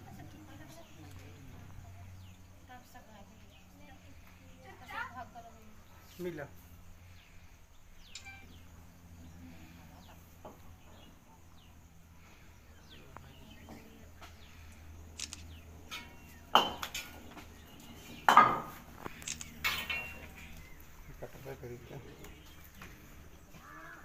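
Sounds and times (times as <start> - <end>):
faint bird chirps: 3.4 - 18.3.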